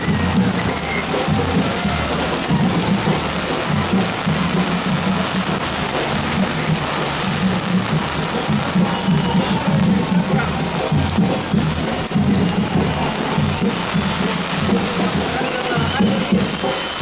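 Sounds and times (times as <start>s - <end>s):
heavy rain pouring: 0.0s - 17.0s
music playing: 0.0s - 17.0s.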